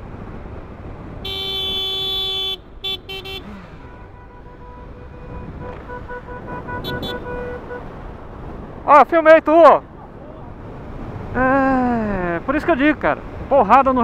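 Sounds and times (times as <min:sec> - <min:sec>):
motorcycle road and wind noise: 0:00.0 - 0:14.0
faint high horn-like tone: 0:01.2 - 0:07.8
vehicle horn: 0:01.2 - 0:08.0.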